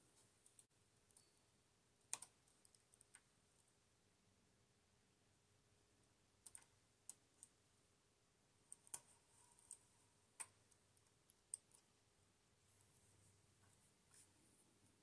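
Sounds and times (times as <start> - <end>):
metal tool clicking on needles: 10.4 - 11.9.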